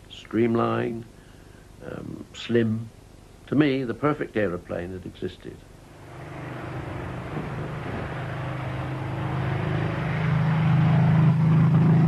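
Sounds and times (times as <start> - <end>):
propeller plane engine droning: 5.8 - 12.0.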